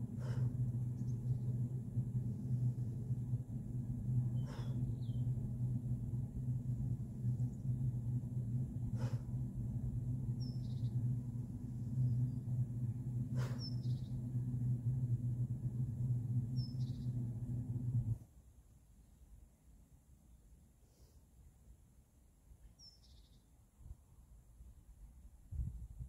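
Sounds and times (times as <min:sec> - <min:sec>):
steady low hum: 0:00.0 - 0:18.5.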